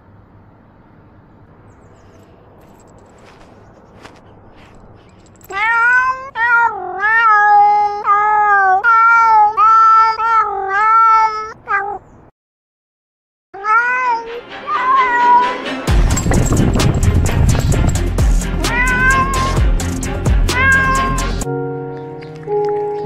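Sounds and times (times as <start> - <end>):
cat meowing: 5.5 - 12.1, 13.6 - 15.6, 18.6 - 19.6, 20.5 - 21.5.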